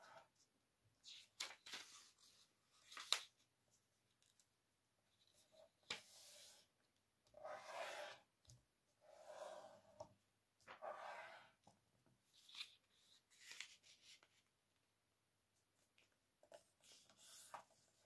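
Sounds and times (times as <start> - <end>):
paper rustling as it is folded: 1.1 - 3.4, 12.4 - 14.5.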